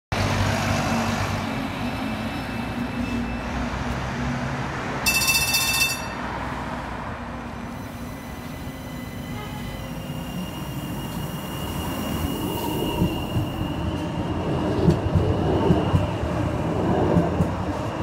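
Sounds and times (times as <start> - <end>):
street traffic: 0.1 - 18.0
bus diesel engine passing: 0.2 - 18.0
high electronic warning tone: 5.1 - 6.3.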